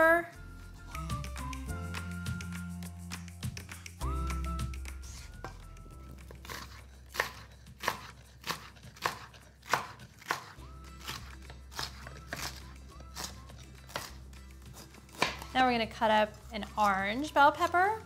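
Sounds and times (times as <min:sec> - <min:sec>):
background music: 0:00.0 - 0:18.0
knife chopping on cutting board: 0:06.3 - 0:15.5.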